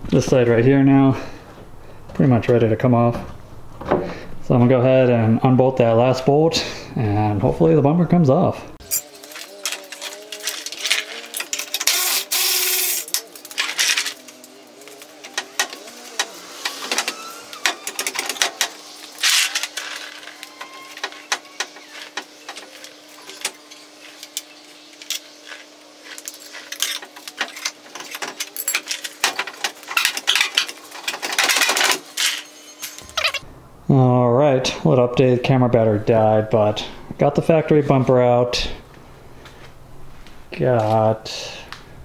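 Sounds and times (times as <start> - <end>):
electric ratchet bursts: 8.8 - 25.6
clanking tools and metal parts: 8.8 - 33.5.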